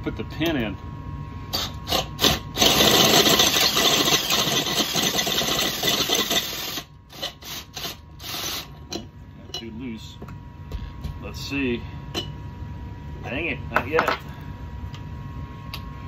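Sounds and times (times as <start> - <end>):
drill cutting into metal: 1.5 - 8.8.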